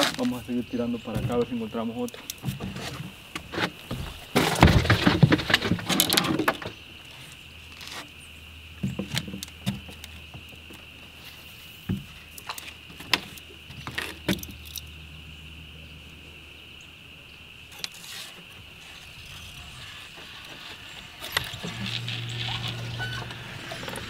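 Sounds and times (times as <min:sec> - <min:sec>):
high-pitched insect drone: 0:13.4 - 0:24.0.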